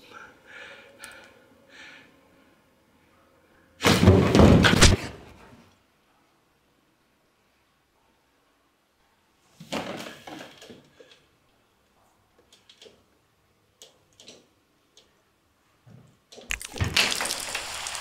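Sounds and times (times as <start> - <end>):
steady hiss: 17.0 - 18.0.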